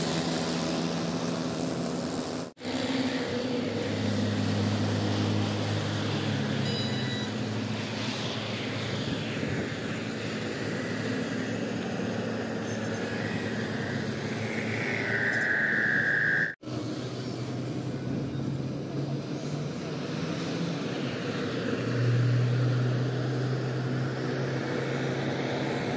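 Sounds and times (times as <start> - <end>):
road noise: 0.0 - 25.9
truck diesel engine drone: 0.0 - 25.9
high steady tone: 6.6 - 7.4, 12.6 - 16.6.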